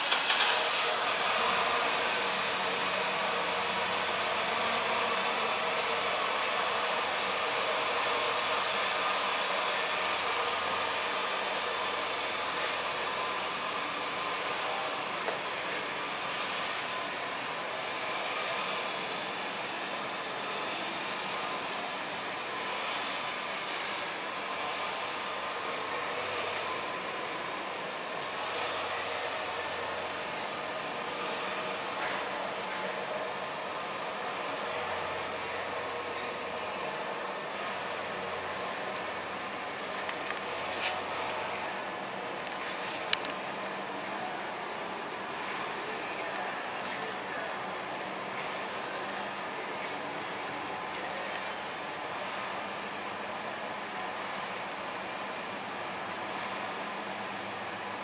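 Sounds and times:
truck engine idling: 0.0 - 58.0
brief hiss: 23.6 - 24.2.

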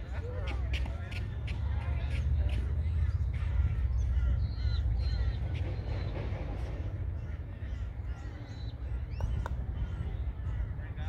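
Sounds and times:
bird calling: 2.6 - 11.0.

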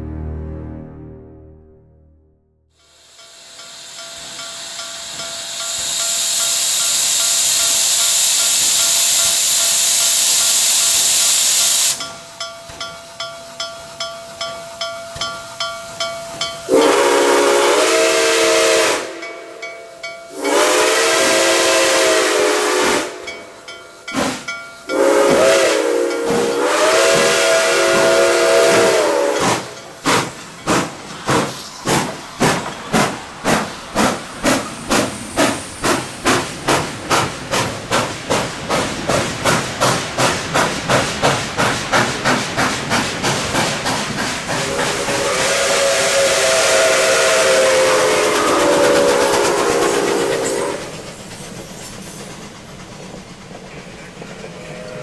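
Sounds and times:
steam locomotive chime whistle: 2.8 - 30.0, 44.6 - 52.4
steam locomotive exhaust chuffs: 2.8 - 55.0.

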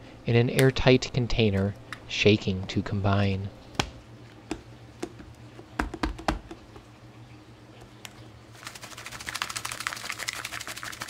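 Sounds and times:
spice rattling in container: 8.5 - 11.0.

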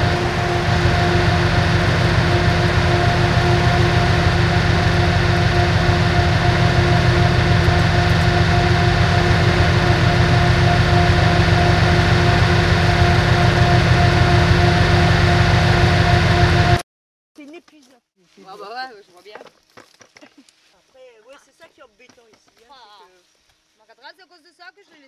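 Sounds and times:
heavy machine engine droning: 0.0 - 16.8
held hum: 0.0 - 16.8.

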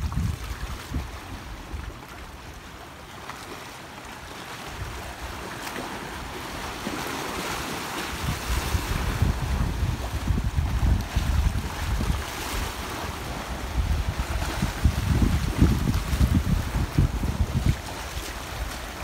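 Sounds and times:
wind buffeting microphone: 0.0 - 2.0, 8.1 - 19.0
waves splashing on rocks: 0.0 - 19.0.

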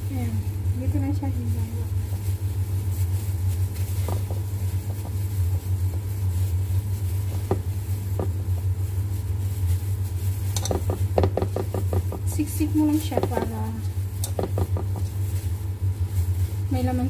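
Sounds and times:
low mechanical hum: 0.0 - 17.0
soft taps of handled vegetables: 3.8 - 6.1, 7.3 - 8.7, 10.5 - 15.4.

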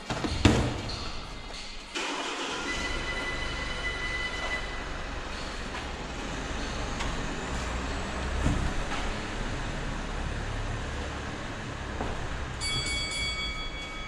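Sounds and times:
high steady tones: 2.6 - 5.7
low rumbling noise: 2.6 - 14.0.

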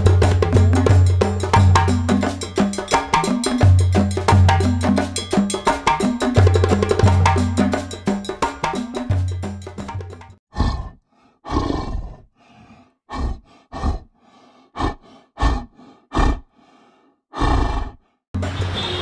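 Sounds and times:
music: 0.0 - 10.4, 18.4 - 19.0
tiger growling and roaring: 10.5 - 16.7, 17.3 - 18.1.

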